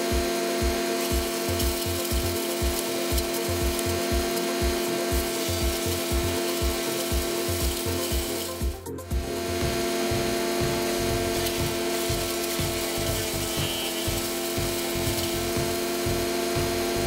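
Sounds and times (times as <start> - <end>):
wood chipper hum: 0.0 - 17.0
wood grinding and rasping: 0.0 - 17.0
low thumps: 8.6 - 16.9.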